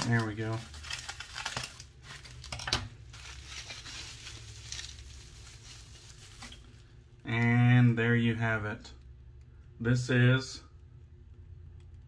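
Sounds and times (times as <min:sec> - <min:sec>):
bubble wrap crinkling: 0:00.0 - 0:07.9.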